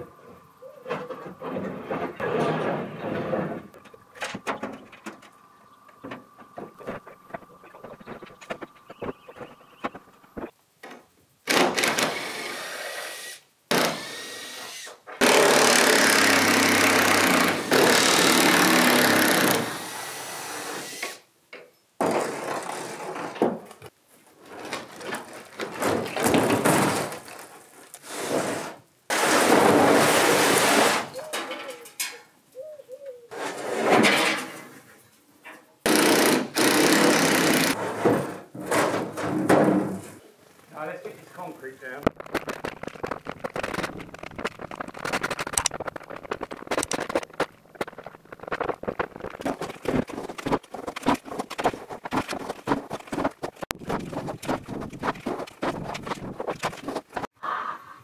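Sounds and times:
roof sheets knocking and clattering: 22.0 - 27.7, 37.8 - 40.2, 42.1 - 57.3.

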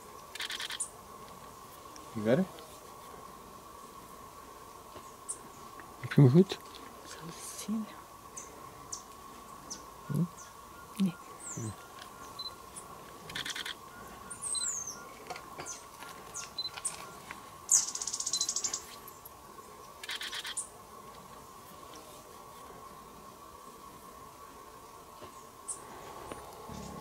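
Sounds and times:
birds chirping and whistling: 13.3 - 18.9.

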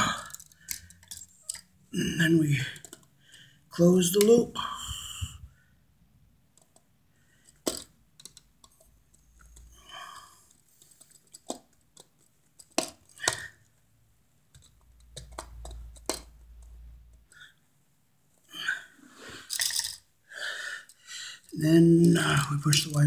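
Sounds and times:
tools clicking on metal screws: 0.1 - 1.7, 19.5 - 20.0.

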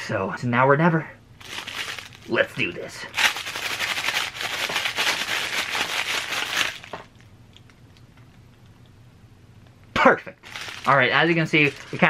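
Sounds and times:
paper bag crinkling: 1.4 - 7.2, 10.4 - 12.0.

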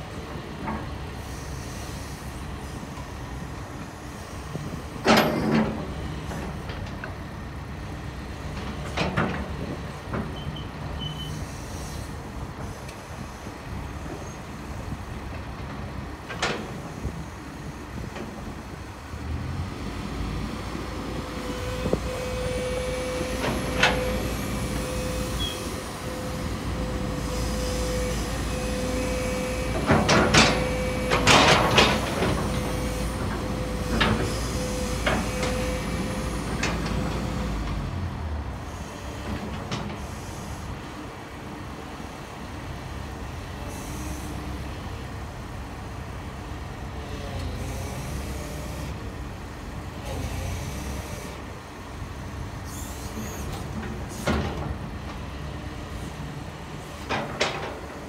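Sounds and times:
excavator engine running: 0.0 - 58.0
hydraulic whine: 21.1 - 37.8.

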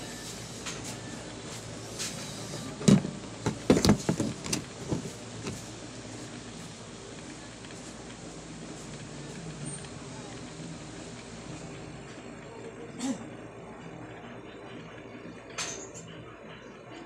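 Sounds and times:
plastic housing knocking on workbench: 2.9 - 5.0.

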